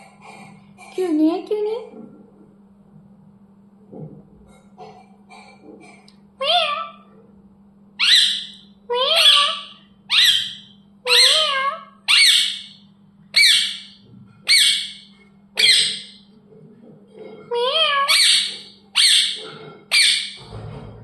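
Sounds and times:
parrot squawking: 0:06.4 - 0:07.1, 0:08.0 - 0:16.2, 0:17.4 - 0:20.4.

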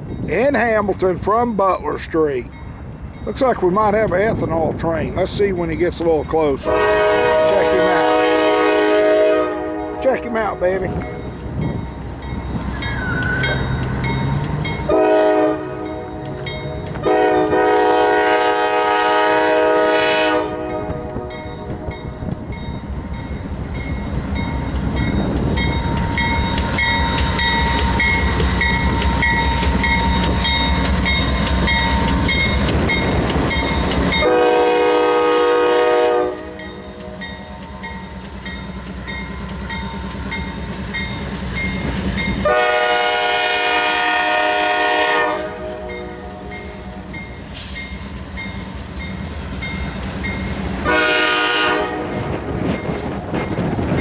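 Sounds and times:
crossing bell ringing: 0:00.0 - 0:04.4, 0:05.5 - 0:08.7, 0:09.5 - 0:18.6, 0:20.5 - 0:42.8, 0:45.7 - 0:50.7, 0:52.2 - 0:54.0
diesel engines and wheels rumbling: 0:00.0 - 0:54.0
train air horn blasts: 0:06.6 - 0:10.3, 0:14.9 - 0:16.3, 0:17.0 - 0:21.9, 0:34.1 - 0:37.3, 0:42.4 - 0:47.0, 0:50.8 - 0:52.5.

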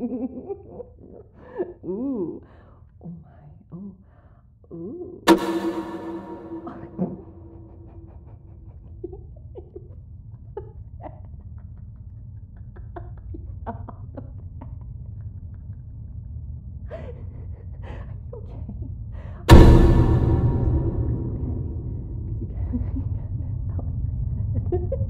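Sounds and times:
low steady rumble: 0:19.5 - 0:25.0.

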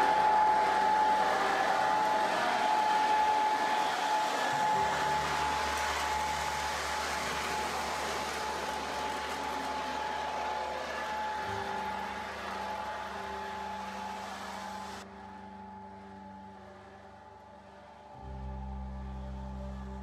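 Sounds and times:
wheels rolling on rails: 0:02.0 - 0:15.0
model train electric motor whirring: 0:02.6 - 0:15.0
deep hum: 0:04.5 - 0:20.0.

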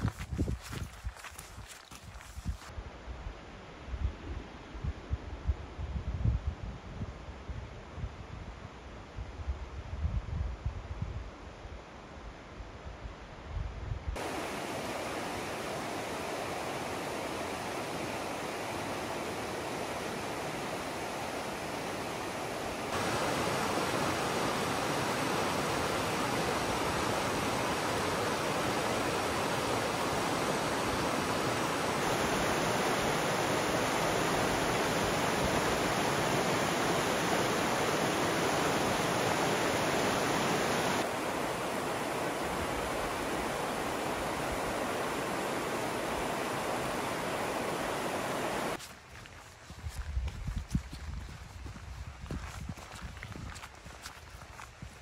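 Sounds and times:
river rushing over rocks: 0:14.2 - 0:48.8.

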